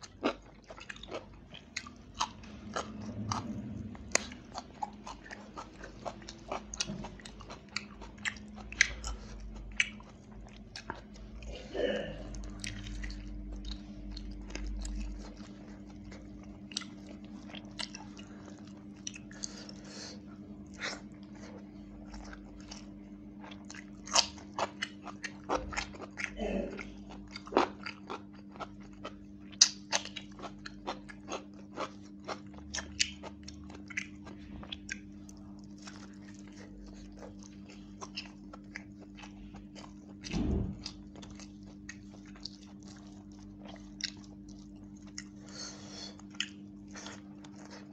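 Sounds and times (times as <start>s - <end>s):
person chewing food: 0.0s - 47.9s
steady low hum: 0.0s - 47.9s.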